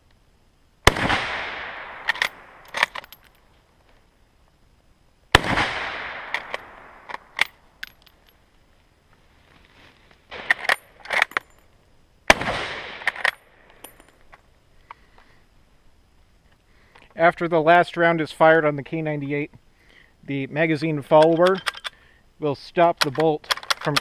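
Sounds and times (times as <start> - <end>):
rifle shots echoing: 0.8 - 3.2, 5.3 - 7.5, 10.3 - 11.4, 12.3 - 13.9
rifle bolt clicks and clacks: 2.0 - 3.3, 10.5 - 11.6, 13.0 - 14.4, 21.1 - 22.0, 23.0 - 24.0.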